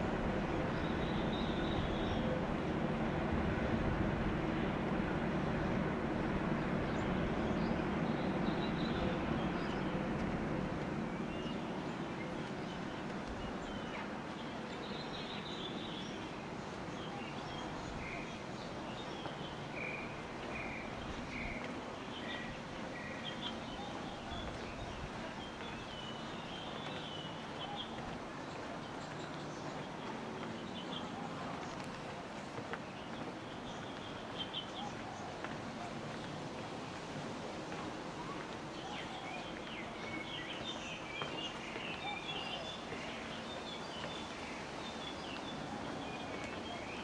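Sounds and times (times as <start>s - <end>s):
passing vehicle rumble: 0.0s - 12.9s
small birds chirping: 11.1s - 32.0s, 32.7s - 36.4s, 38.2s - 47.0s.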